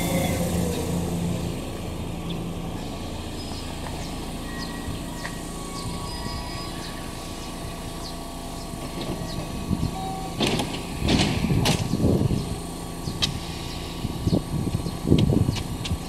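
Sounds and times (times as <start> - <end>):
standing train humming: 0.0 - 16.0
train doors sliding open: 8.8 - 12.2.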